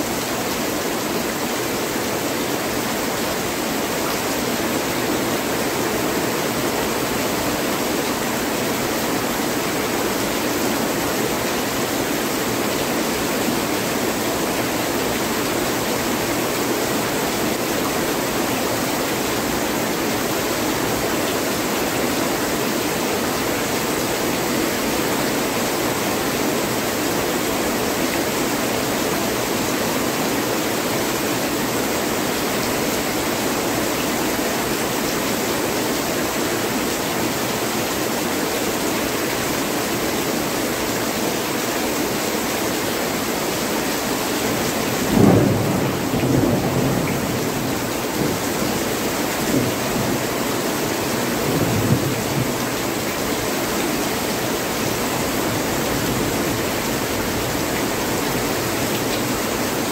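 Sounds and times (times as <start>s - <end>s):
heavy rain pouring: 0.0s - 59.9s
thunder rumbling: 45.1s - 48.4s.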